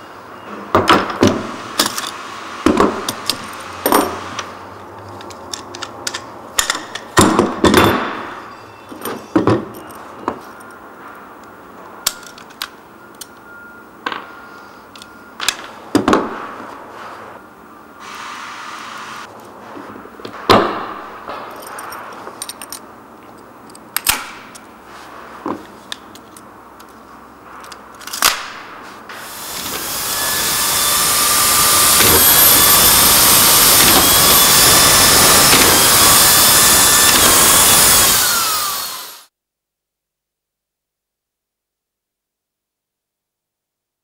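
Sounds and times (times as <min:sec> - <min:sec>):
power screwdriver whining: 0:29.1 - 0:39.3.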